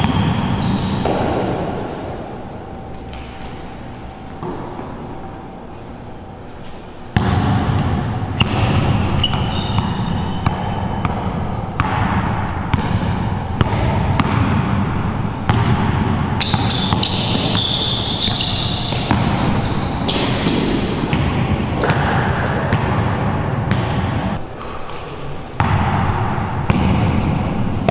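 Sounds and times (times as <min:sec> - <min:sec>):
sneakers squeaking: 0:00.0 - 0:23.1
basketball bouncing on hard floor: 0:07.2 - 0:14.8, 0:15.5 - 0:23.1.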